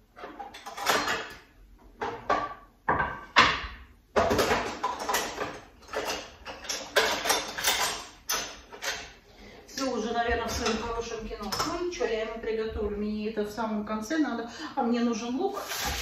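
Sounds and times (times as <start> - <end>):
utensils clattering in a sink: 0.0 - 12.0, 15.5 - 16.0.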